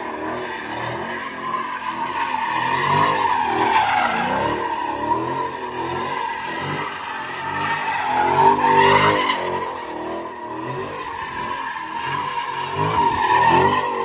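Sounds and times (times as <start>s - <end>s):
car engine revving: 0.0s - 14.0s
tires squealing: 0.0s - 14.0s.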